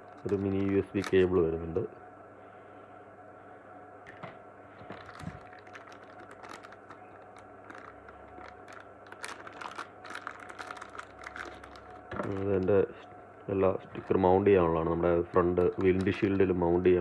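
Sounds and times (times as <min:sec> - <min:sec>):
plastic crinkling: 0:00.0 - 0:01.4, 0:04.8 - 0:13.1, 0:13.8 - 0:16.9.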